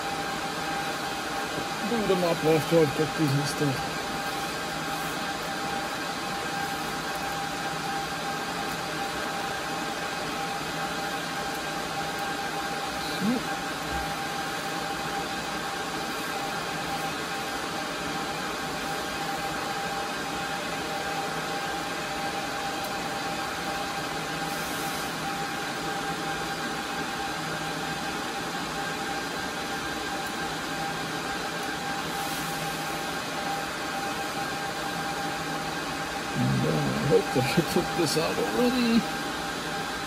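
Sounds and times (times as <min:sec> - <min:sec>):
cooling fans whirring: 0:00.0 - 0:40.0
steady whine: 0:36.2 - 0:40.0.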